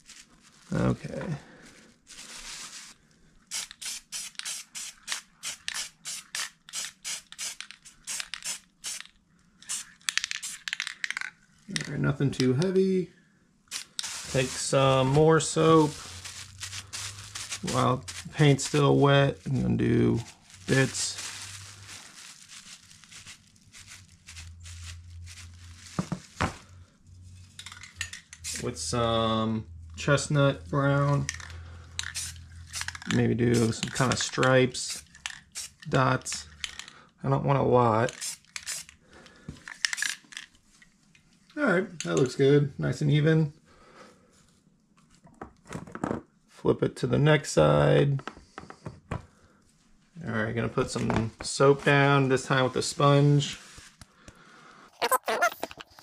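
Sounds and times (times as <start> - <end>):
plastic bag crinkling: 0.0 - 3.9, 13.7 - 26.8, 55.0 - 56.0
spray paint can hissing: 3.5 - 9.1, 9.7 - 10.9, 13.7 - 15.2, 15.8 - 18.8, 28.4 - 28.6, 32.0 - 33.0, 34.9 - 35.9, 38.2 - 38.9.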